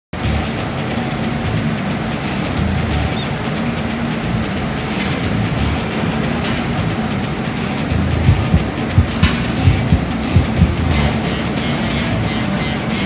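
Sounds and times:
machine rumble and hum: 2.4 - 3.3, 5.3 - 6.0, 7.8 - 12.7.

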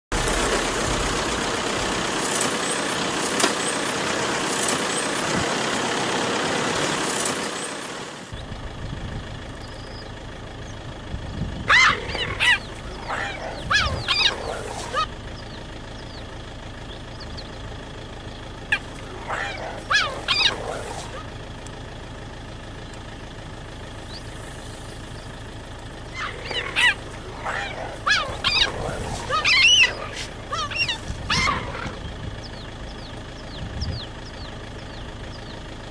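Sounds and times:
cheetahs chirping: 8.3 - 21.7, 22.7 - 35.9
low steady hum: 8.3 - 35.9.

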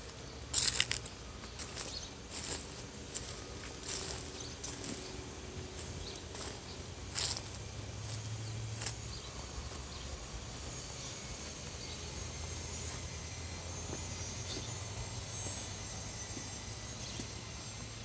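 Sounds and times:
steady low hum: 0.0 - 18.0
high insect buzz: 0.1 - 18.0.

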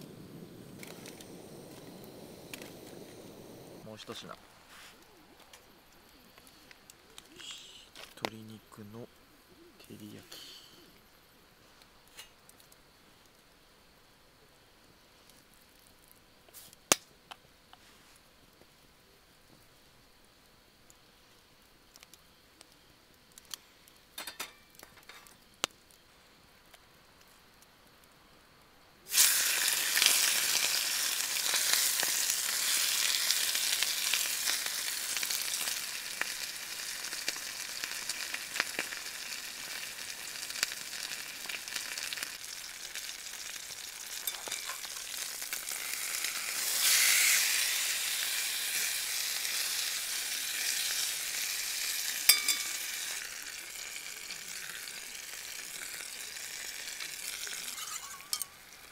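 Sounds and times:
chicken sizzling in skillet: 23.5 - 25.6, 29.1 - 58.9.

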